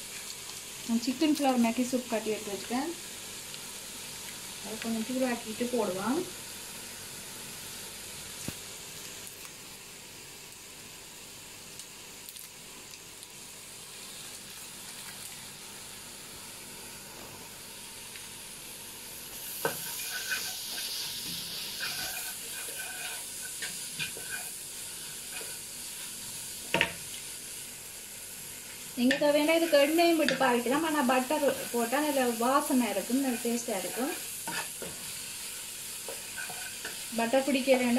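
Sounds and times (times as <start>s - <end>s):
vegetables sizzling in butter: 0.0s - 37.9s
spatula scraping pan: 19.6s - 26.2s, 29.0s - 35.2s, 36.0s - 37.9s.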